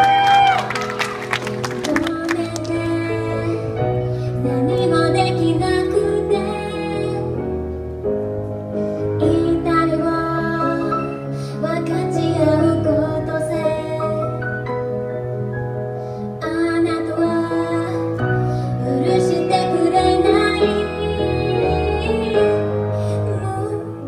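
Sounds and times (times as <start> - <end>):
grand piano: 0.0 - 24.0
woman singing into microphone: 1.8 - 7.4, 9.2 - 14.4, 16.4 - 24.0.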